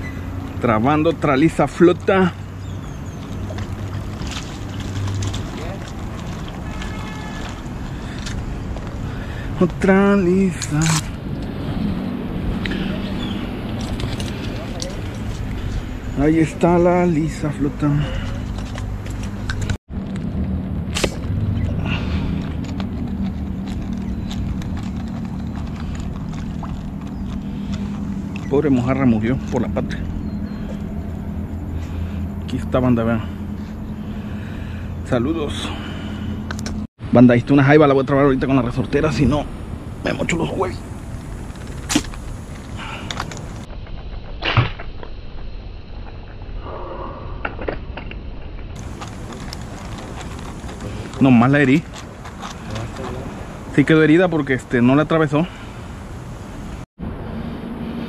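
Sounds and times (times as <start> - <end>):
steady low rumble: 0.0 - 58.0
slingshot snap: 20.9 - 21.3
slingshot snap and thud: 20.9 - 21.4, 44.2 - 45.1.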